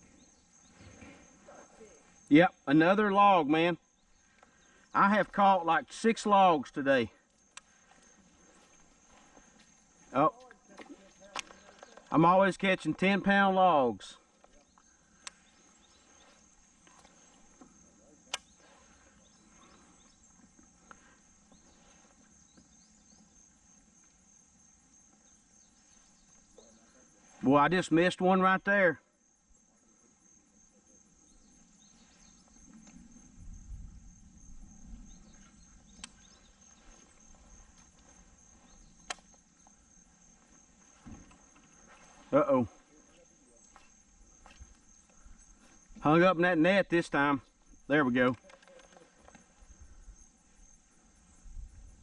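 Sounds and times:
insects chirring: 0.0s - 52.0s
sharp clicks: 39.0s - 39.3s.

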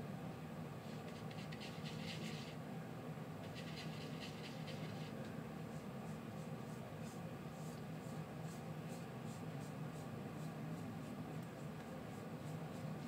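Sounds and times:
steady low hum: 0.0s - 13.0s
paintbrush scratching: 1.0s - 2.6s, 3.4s - 5.2s.

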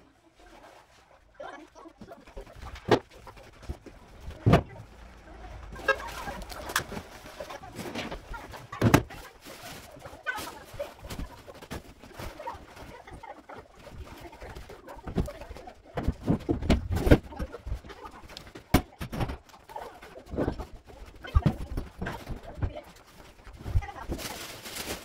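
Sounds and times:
furniture knocks and thuds: 4.3s - 4.8s, 7.8s - 9.1s, 15.0s - 17.5s.

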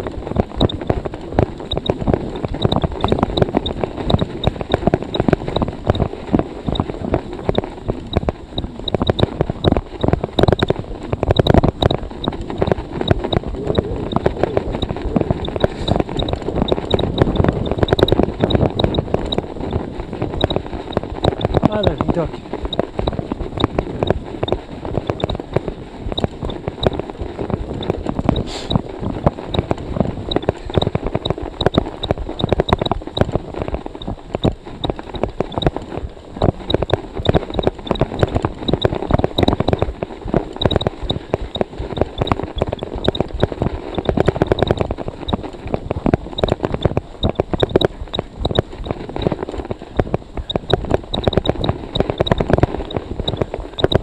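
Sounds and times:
bike tyres crunching through snow: 0.0s - 32.4s
wind on microphone: 0.0s - 54.0s.

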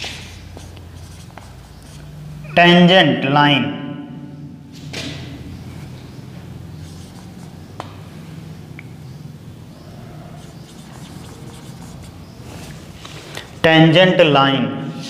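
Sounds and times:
marker scratching on whiteboard: 0.0s - 2.2s, 5.6s - 7.9s, 9.8s - 13.7s.

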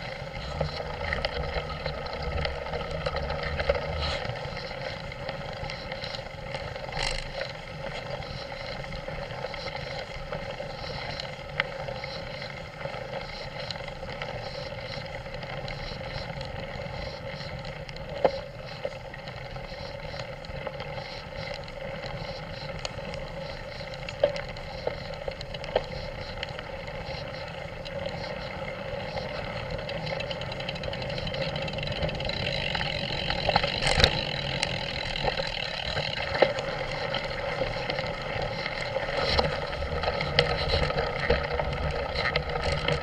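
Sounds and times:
bike tyres rolling on gravel: 0.0s - 43.0s.

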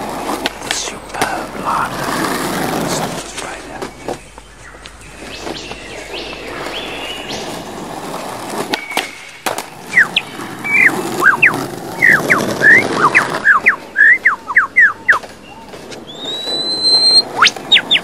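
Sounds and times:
skateboard clacks: 0.0s - 4.3s, 5.5s - 14.4s
skateboard rolling over asphalt: 0.0s - 18.0s
lyrebird singing: 0.2s - 18.0s.

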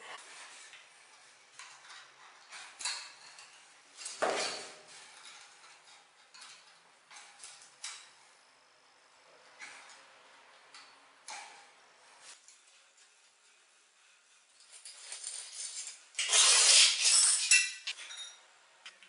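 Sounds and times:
ruler scraping on tile: 14.6s - 18.0s.

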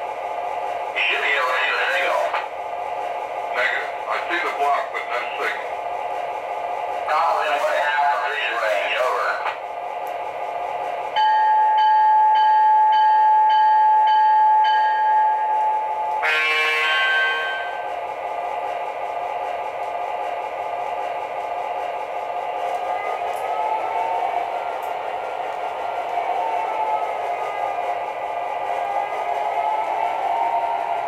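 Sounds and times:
locomotive bell ringing: 11.2s - 15.4s, 16.2s - 17.8s
air horn blast: 16.2s - 17.8s.

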